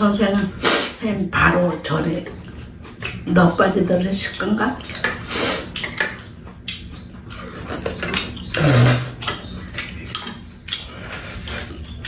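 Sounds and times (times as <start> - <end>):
slurping and chewing: 4.8 - 12.0.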